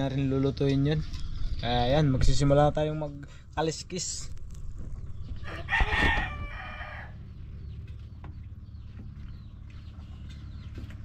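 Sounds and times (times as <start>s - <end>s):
rooster crowing: 5.4s - 7.3s.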